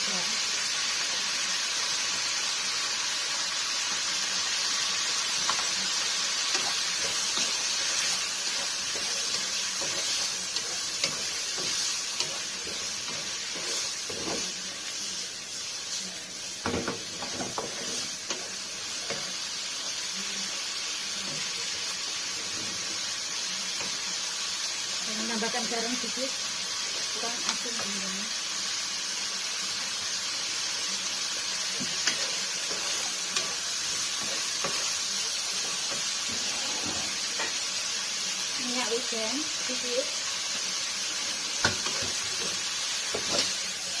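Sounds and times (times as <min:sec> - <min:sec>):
stir-fry sizzling in a wok: 0:00.0 - 0:44.0.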